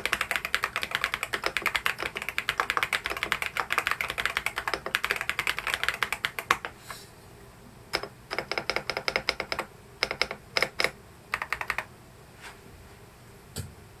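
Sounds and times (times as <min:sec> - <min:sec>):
mechanical keyboard typing: 0:00.0 - 0:06.7, 0:07.9 - 0:11.9.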